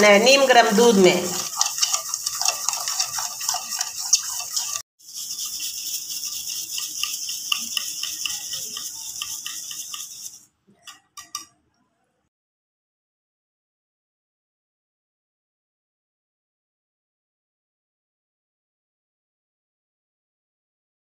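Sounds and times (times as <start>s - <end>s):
spoon scraping ceramic bowl: 0.0s - 11.6s
wire whisk beating liquid: 0.0s - 11.6s.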